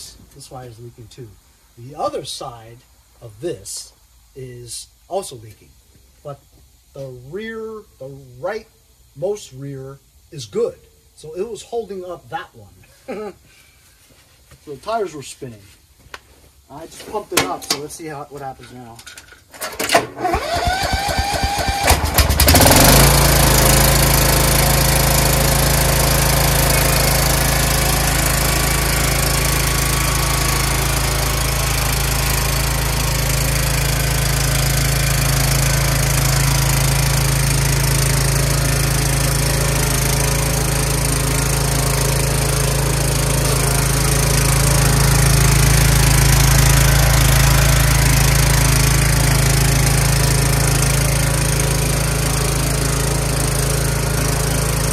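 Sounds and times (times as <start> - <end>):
lawn tractor engine running: 19.6 - 54.9
small engine cranking: 19.7 - 54.9.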